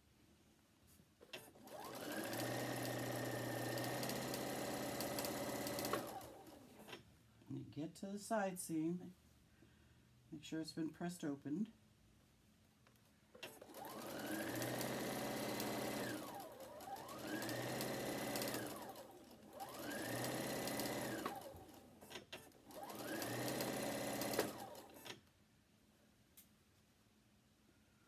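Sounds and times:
sewing machine stitching: 0:01.2 - 0:07.0, 0:13.4 - 0:25.2.

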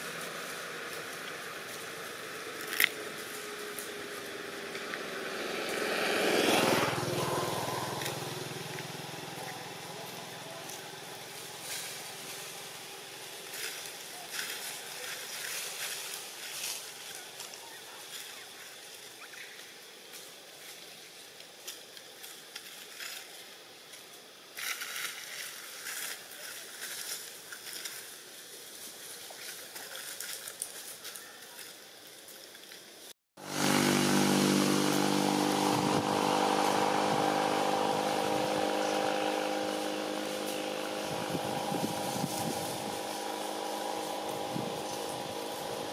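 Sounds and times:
small engine running: 0:00.0 - 0:18.4, 0:33.4 - 0:45.9
faint clicks and rustles: 0:08.0 - 0:33.1.

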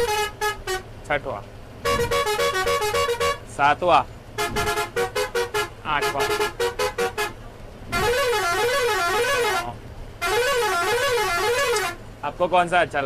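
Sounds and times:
musical horn warbling tone: 0:00.0 - 0:00.9, 0:01.8 - 0:03.5, 0:04.4 - 0:12.0
bus air horn toots: 0:00.0 - 0:01.0, 0:01.8 - 0:03.5, 0:04.4 - 0:12.0.

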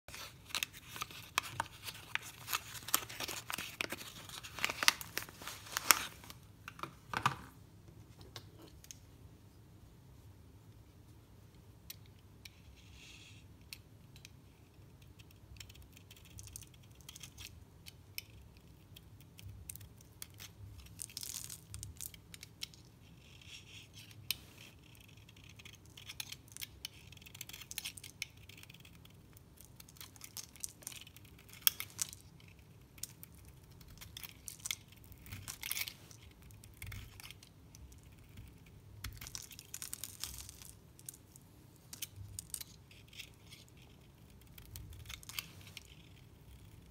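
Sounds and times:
soap flakes crackling: 0:00.1 - 0:06.4, 0:19.7 - 0:22.8, 0:25.6 - 0:46.0.

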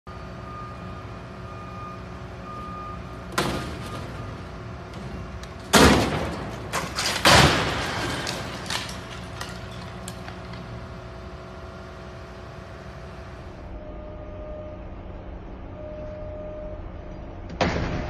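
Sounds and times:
crane engine hum: 0:00.1 - 0:17.6
heavy object crashing and banging: 0:05.6 - 0:09.3.

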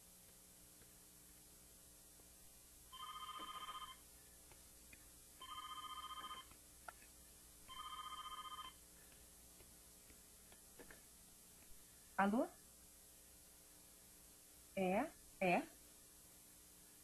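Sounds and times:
telephone ringing: 0:02.9 - 0:04.0, 0:05.4 - 0:06.5, 0:07.7 - 0:08.8.

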